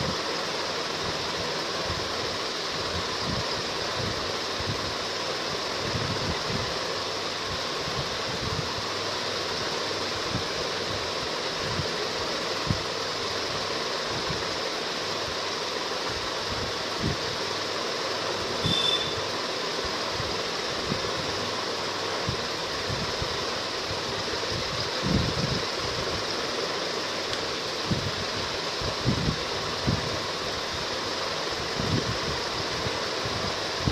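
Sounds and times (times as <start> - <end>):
background hiss: 0.0 - 33.9
brief high tone: 18.6 - 19.3.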